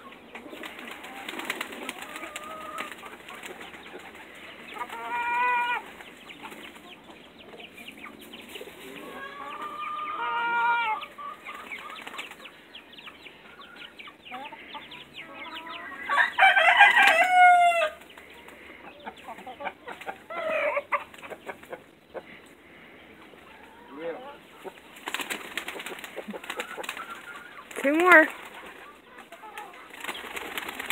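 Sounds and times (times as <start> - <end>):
chickens calling: 0.0 - 30.9
pigeon wings fluttering: 0.6 - 4.2, 25.0 - 28.8, 29.6 - 30.9
rooster crowing: 15.8 - 18.0.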